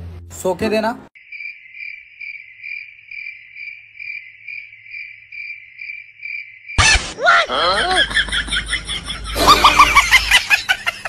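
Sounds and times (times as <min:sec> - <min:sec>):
cricket chirping: 0:01.2 - 0:06.8.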